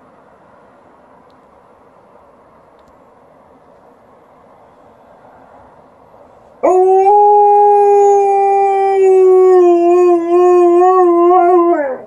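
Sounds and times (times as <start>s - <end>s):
dog howling: 6.6s - 12.0s.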